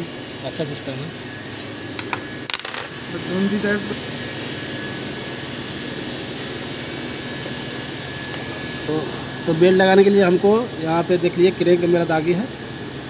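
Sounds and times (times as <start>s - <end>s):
machine background noise: 0.8s - 5.3s
handling clatter: 2.5s - 2.9s.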